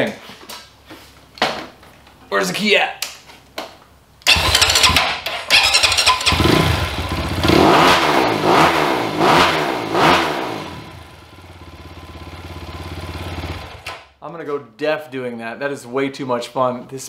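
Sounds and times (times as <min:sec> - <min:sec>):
dirt bike engine revving: 0:04.3 - 0:13.8.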